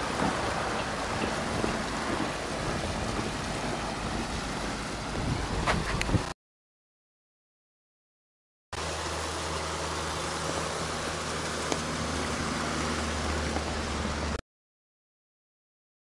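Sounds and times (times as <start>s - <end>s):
river water rushing: 0.0s - 5.3s, 8.8s - 14.4s.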